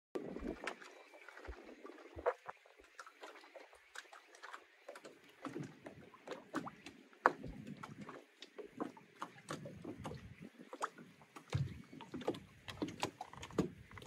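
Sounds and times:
seawater lapping against hull: 0.2 - 14.0
small splashes: 0.2 - 14.0.

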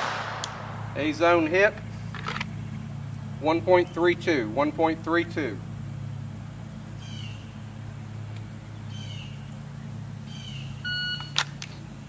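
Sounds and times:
low hum: 0.0 - 10.4
bird chirping: 8.6 - 11.2.

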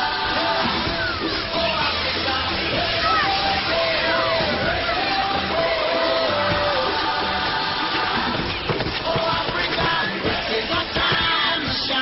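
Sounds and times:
soundtrack music with a beat: 0.0 - 12.0.

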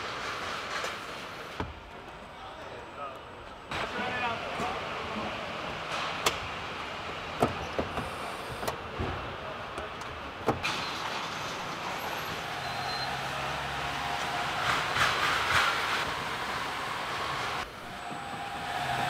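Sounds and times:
machinery humming: 11.8 - 19.0.

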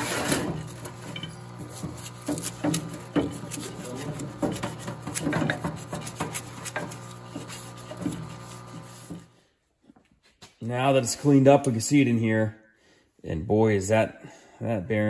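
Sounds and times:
pump humming: 0.0 - 9.3
brush scraping metal part: 0.0 - 9.4.

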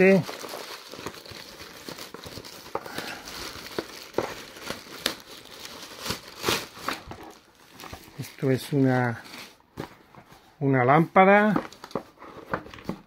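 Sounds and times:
plastic mailer bag crinkling: 0.0 - 9.6.

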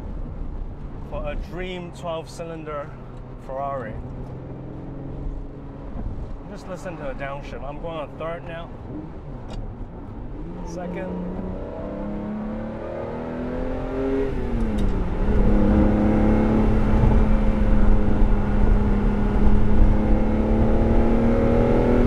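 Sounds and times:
car engine revving: 3.9 - 22.0.

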